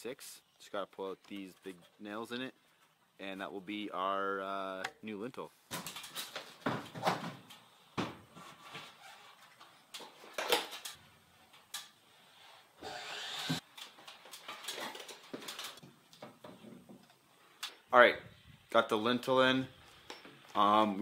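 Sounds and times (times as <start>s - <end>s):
wooden knocks and clatters: 5.7s - 8.3s.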